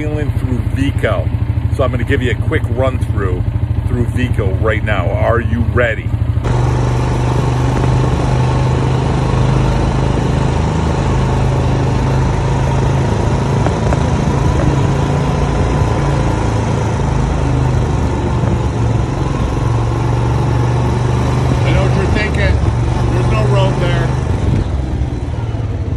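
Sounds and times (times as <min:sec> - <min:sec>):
atv engine running: 0:00.0 - 0:25.9.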